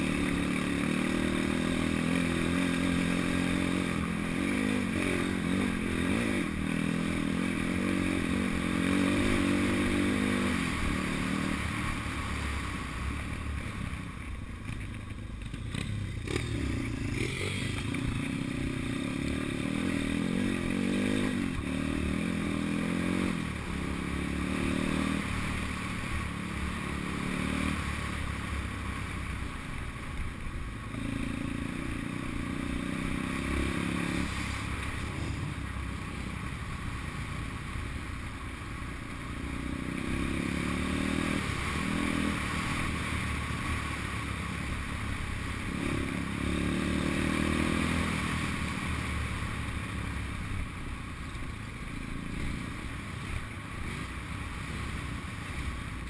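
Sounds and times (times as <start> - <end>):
pit bike engine revving: 0.0 - 12.1, 15.4 - 28.3, 30.9 - 35.8, 39.6 - 43.4, 45.3 - 48.6.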